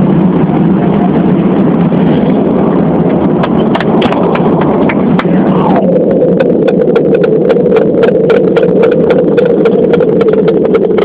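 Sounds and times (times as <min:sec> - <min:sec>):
airliner engine roar in cabin: 0:00.0 - 0:11.0
engine whine: 0:00.0 - 0:11.0.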